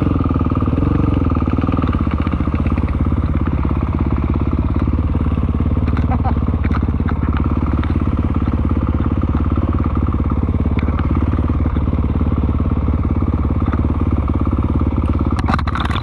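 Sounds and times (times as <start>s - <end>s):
dirt bike engine running: 0.0s - 16.0s.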